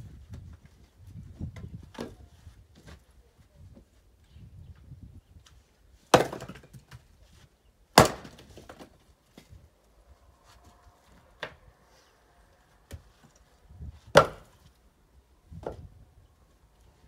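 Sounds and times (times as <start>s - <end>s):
axe splitting firewood: 6.1s - 7.0s, 7.9s - 9.6s, 14.0s - 14.7s.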